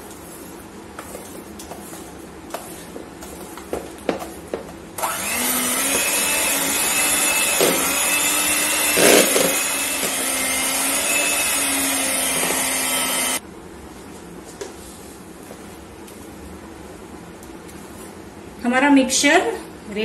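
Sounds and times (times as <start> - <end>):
electric hand mixer running: 5.0 - 13.4.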